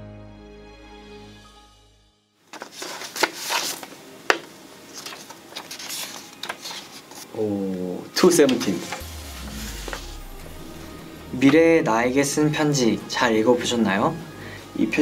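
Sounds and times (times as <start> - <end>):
background music: 0.0 - 2.4, 3.5 - 15.0
paper rustling and crinkling: 2.5 - 7.4, 8.3 - 9.0.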